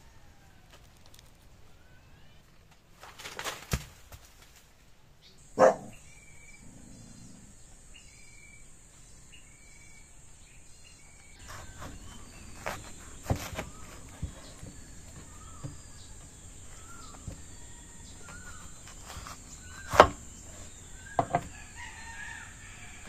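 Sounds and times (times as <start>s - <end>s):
leaves rustling: 0.1s - 5.3s, 11.2s - 23.0s
stalk snapping: 2.7s - 4.7s
bird chirping: 5.2s - 23.0s
knocks: 21.2s - 21.5s.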